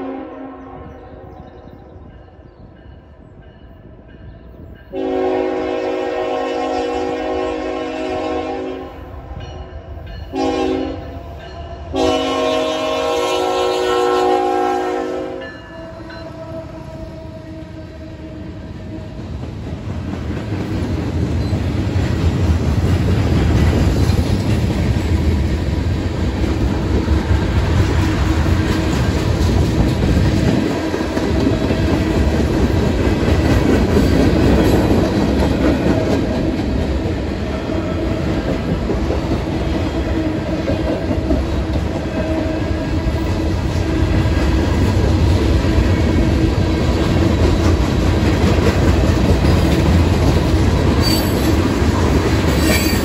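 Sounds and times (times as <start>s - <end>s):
locomotive horn blasts: 0.0s - 1.3s, 4.9s - 9.1s, 10.3s - 11.2s, 11.9s - 19.0s
train rumble: 0.0s - 53.0s
train wheel clatter: 19.2s - 53.0s.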